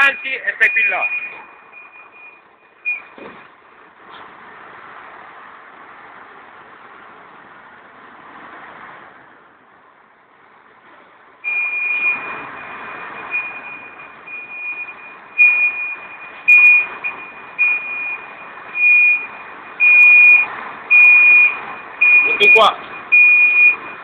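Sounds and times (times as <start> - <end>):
truck reversing alarm: 0.0 - 3.5, 11.4 - 24.0
truck engine running: 9.2 - 24.0.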